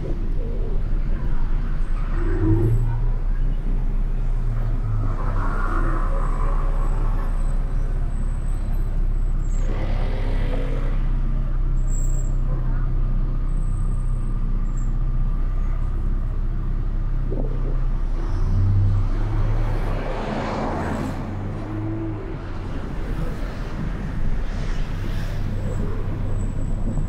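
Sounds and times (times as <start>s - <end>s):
car engine: 0.0s - 27.0s
road noise: 0.0s - 27.0s
passing vehicle rush: 17.7s - 27.0s.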